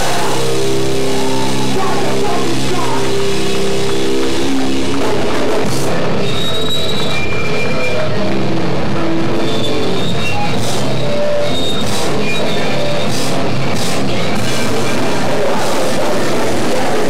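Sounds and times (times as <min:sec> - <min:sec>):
cymbal crashes: 0:00.0 - 0:06.2
rock band playing: 0:00.0 - 0:17.0.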